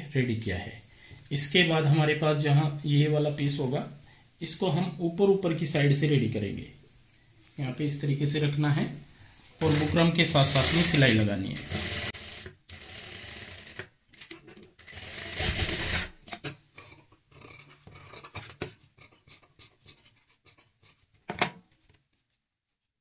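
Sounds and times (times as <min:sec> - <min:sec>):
sewing machine stitching: 0:09.6 - 0:16.2.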